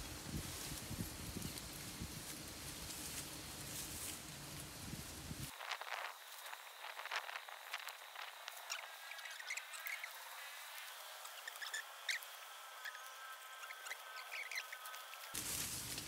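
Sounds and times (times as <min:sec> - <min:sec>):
rat squeaking: 0:07.3 - 0:10.4, 0:11.2 - 0:15.3.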